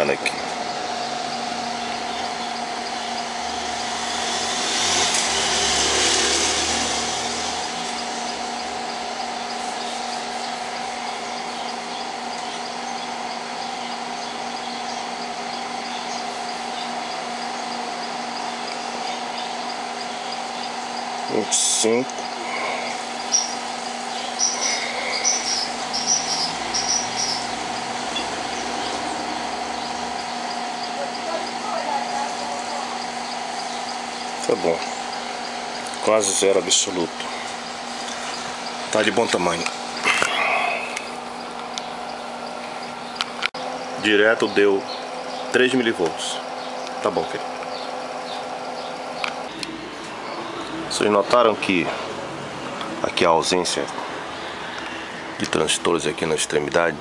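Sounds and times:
cooling fan humming: 0:00.0 - 0:57.0
rushing hiss: 0:03.5 - 0:08.2
small animal chirping: 0:22.1 - 0:36.0.

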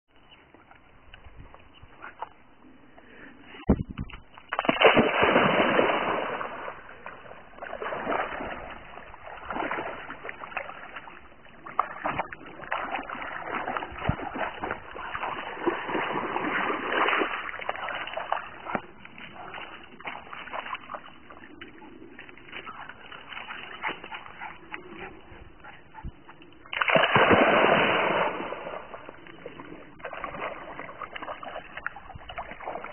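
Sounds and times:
dog swimming and sloshing: 0:04.0 - 0:32.9
dog splashing into water: 0:04.5 - 0:21.6, 0:26.6 - 0:32.9.

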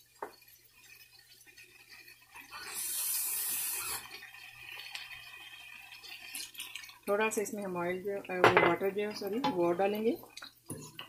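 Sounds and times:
water hissing in hot pan: 0:00.0 - 0:11.0.

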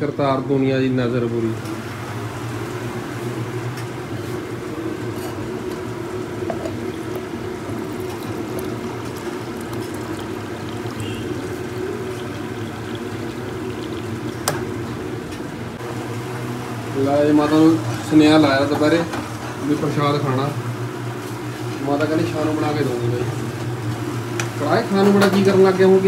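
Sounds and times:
water pouring into steel cup: 0:06.7 - 0:15.1.

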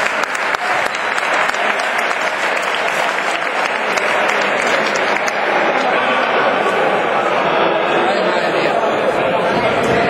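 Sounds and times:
crowd applauding: 0:00.0 - 0:07.0.

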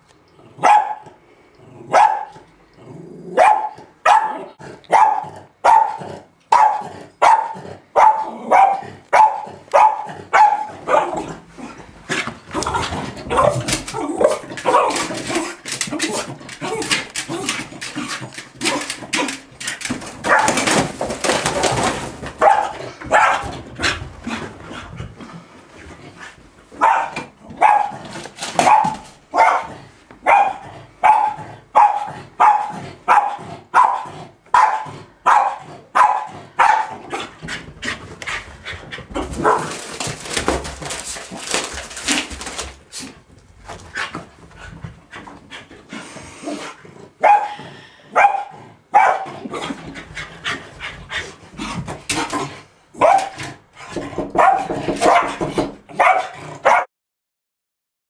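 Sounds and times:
dog barking excitedly: 0:00.6 - 0:01.2, 0:01.9 - 0:02.4, 0:03.4 - 0:11.4, 0:12.1 - 0:24.0, 0:26.7 - 0:37.7, 0:39.1 - 0:42.6, 0:47.2 - 0:49.8, 0:53.0 - 0:56.9.

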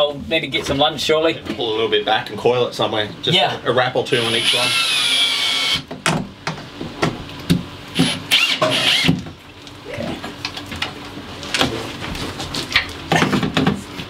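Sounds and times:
cordless drill motor whining: 0:04.1 - 0:05.8, 0:08.0 - 0:09.2.

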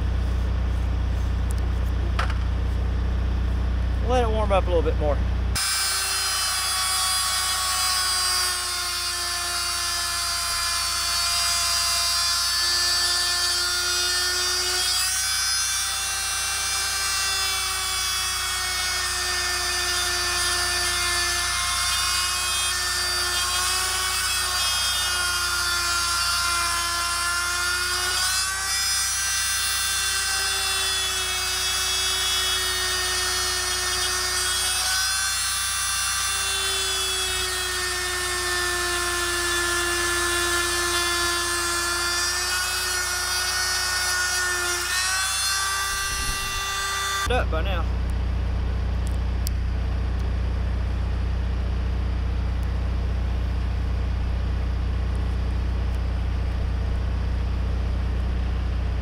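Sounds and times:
oscillating multi-tool cutting rubber: 0:05.6 - 0:47.3.

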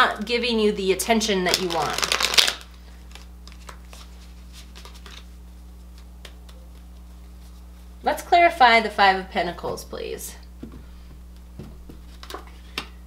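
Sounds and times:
low electrical hum: 0:00.0 - 0:13.0
cards shuffled in hands: 0:01.5 - 0:07.9, 0:12.0 - 0:12.6.

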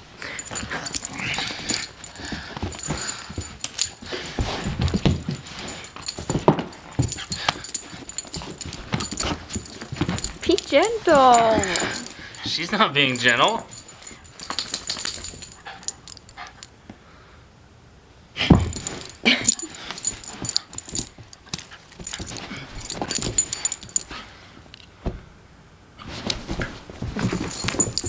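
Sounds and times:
scuffling and clicking: 0:00.4 - 0:16.7.

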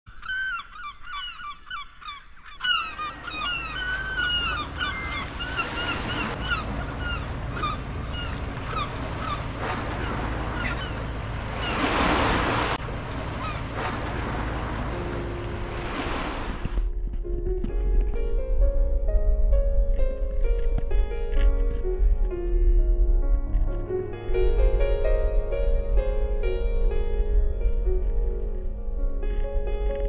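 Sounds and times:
bird calls chattering: 0:00.1 - 0:12.0
wind on the shore: 0:00.1 - 0:30.0
small waves washing: 0:02.7 - 0:16.9
wave breaking: 0:02.8 - 0:17.5.

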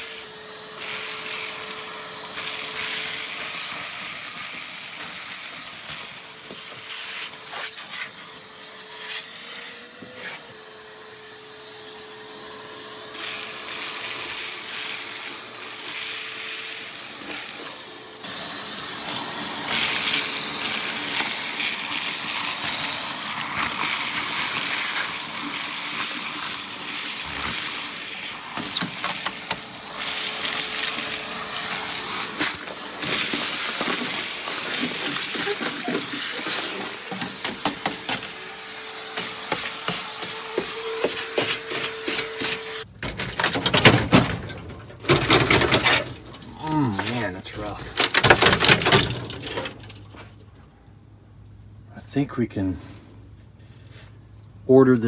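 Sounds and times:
shop vacuum running: 0:00.0 - 0:42.9
debris rattling up a hose: 0:00.7 - 0:07.9, 0:13.2 - 0:50.6.

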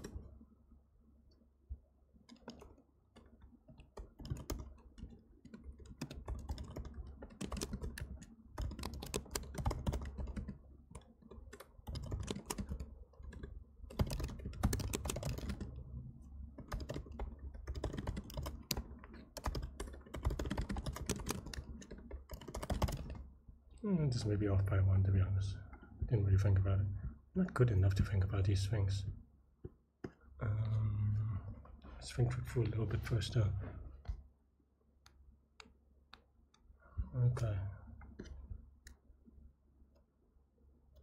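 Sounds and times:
computer keyboard typing: 0:00.0 - 0:00.3, 0:02.3 - 0:15.9, 0:16.5 - 0:23.3.

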